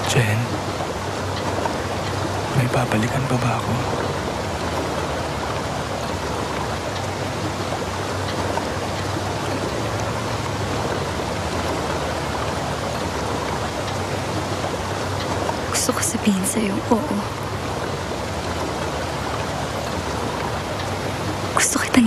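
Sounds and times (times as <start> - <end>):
waves rushing: 0.0 - 22.0
wind: 0.0 - 22.0.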